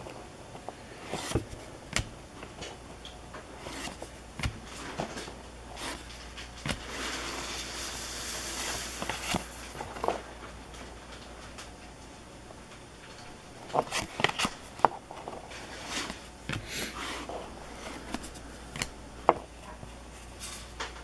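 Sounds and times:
cards flipping and snapping: 1.1s - 7.1s, 13.6s - 19.0s.

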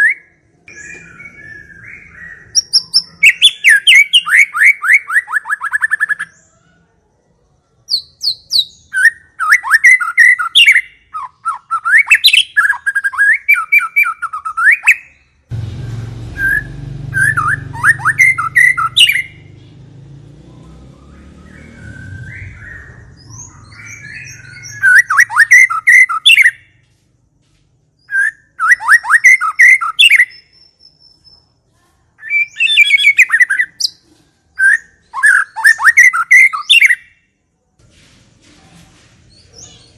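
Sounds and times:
bird singing whistled notes: 0.0s - 6.5s, 7.9s - 15.4s, 16.4s - 19.6s, 20.4s - 26.8s, 28.0s - 31.4s, 32.2s - 34.0s, 34.6s - 37.2s
low rumbling noise: 15.5s - 23.4s.

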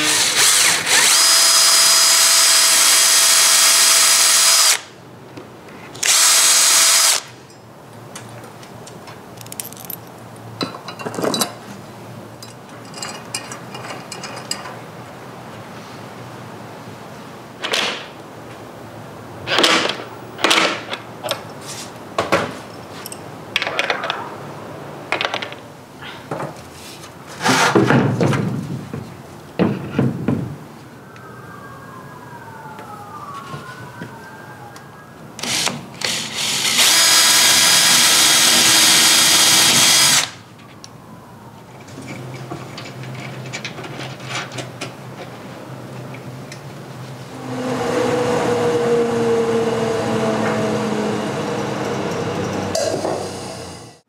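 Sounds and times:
power drill running: 0.0s - 4.9s, 6.0s - 7.3s, 35.4s - 40.4s.

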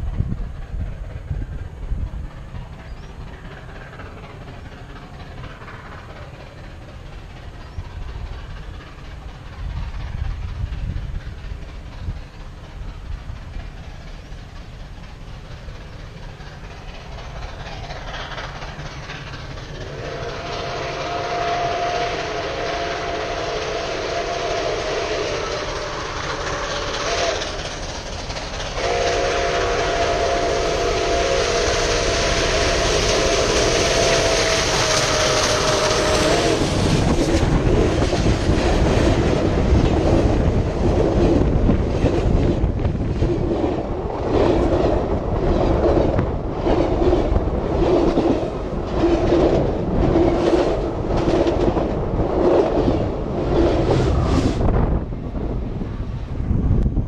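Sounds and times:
clickety-clack of wheels: 0.0s - 54.8s
train wheels rumbling on rails: 0.0s - 57.0s
steam locomotive chime whistle: 19.8s - 27.6s, 28.8s - 37.2s.

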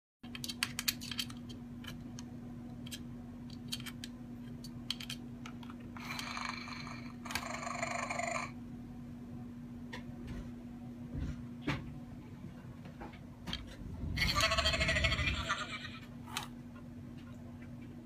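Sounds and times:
harsh noisy sounds: 13.9s - 16.1s.

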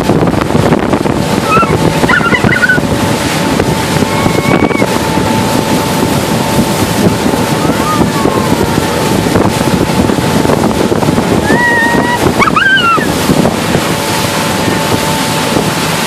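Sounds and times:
rushing water: 0.0s - 16.0s
speedboat engine: 0.0s - 16.0s
wind buffeting microphone: 0.0s - 16.0s.

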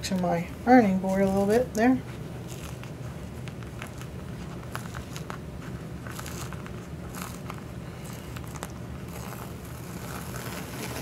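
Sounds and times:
steady low hum: 0.0s - 11.0s
plastic wrapper crinkling: 2.4s - 11.0s.

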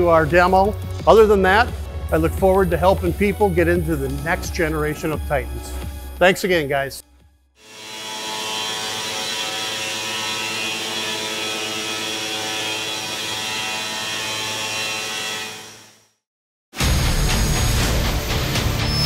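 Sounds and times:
stone router spindle whine: 7.6s - 16.1s.

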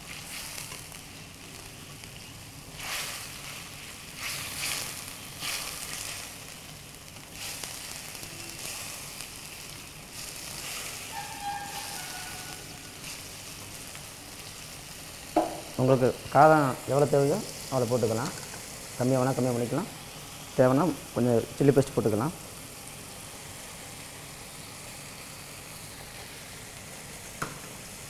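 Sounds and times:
chicken sizzling in a wok: 0.0s - 28.0s.

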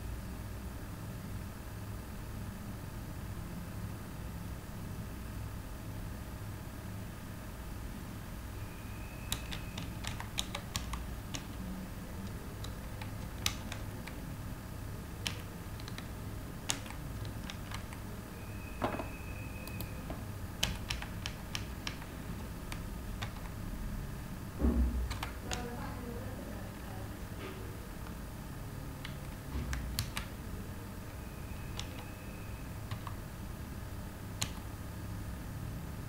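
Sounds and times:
steady low hum: 0.0s - 36.0s
keyboard keystroke clicks: 9.3s - 11.6s, 12.2s - 14.2s, 15.2s - 16.1s, 16.7s - 18.0s, 19.6s - 23.6s, 25.0s - 25.7s, 29.0s - 30.4s, 31.7s - 32.1s, 32.9s - 33.2s, 34.4s - 34.7s.

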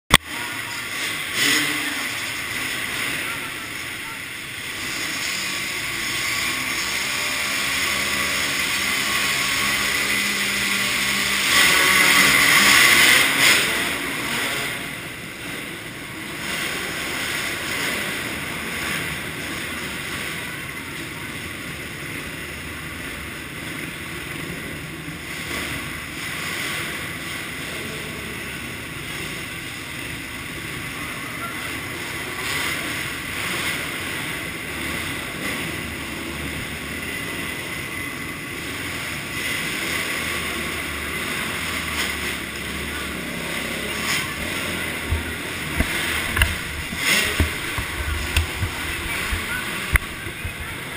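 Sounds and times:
motocross bike engines: 0.1s - 50.9s.

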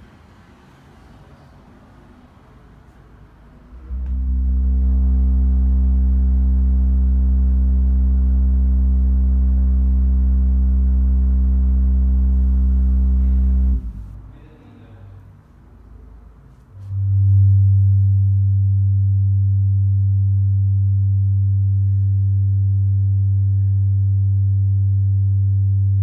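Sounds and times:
low electronic tone: 3.7s - 14.3s, 16.8s - 26.0s.

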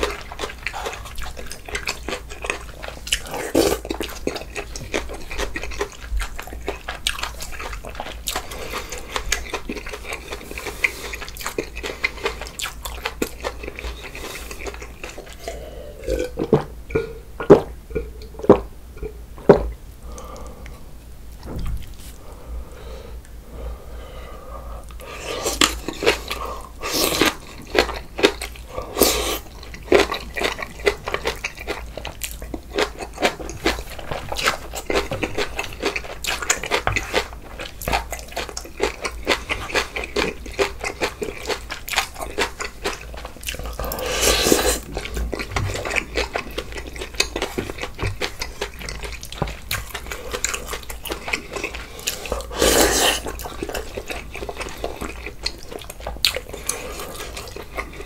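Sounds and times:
wet chewing and smacking: 0.0s - 15.6s, 24.9s - 58.0s
slurping: 42.9s - 47.6s, 49.7s - 58.0s.

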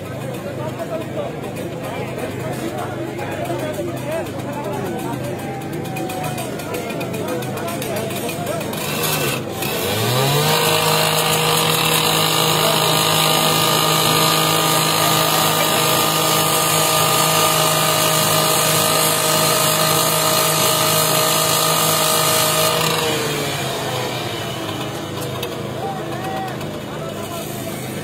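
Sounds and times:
angle grinder cutting steel: 5.7s - 28.0s.

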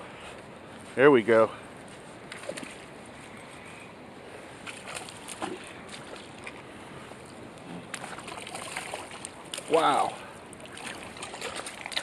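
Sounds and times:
fish splashing: 2.3s - 2.9s, 4.6s - 6.7s, 7.8s - 12.0s
flowing river water: 4.4s - 12.0s.

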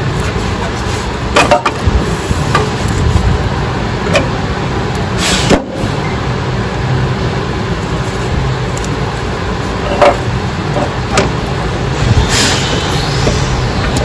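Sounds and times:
steady low hum: 0.0s - 14.0s
metal scrape: 11.8s - 14.0s.

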